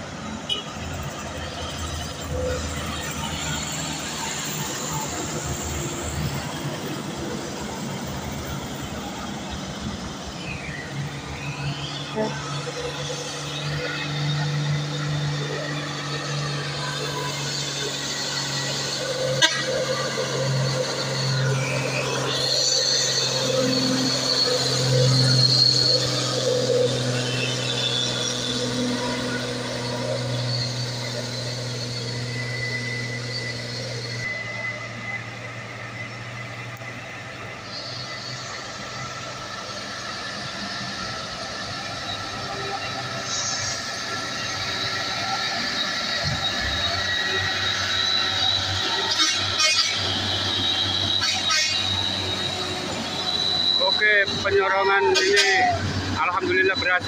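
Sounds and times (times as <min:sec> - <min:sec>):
diesel trucks idling: 0:00.0 - 0:57.0
road noise: 0:00.0 - 0:57.0.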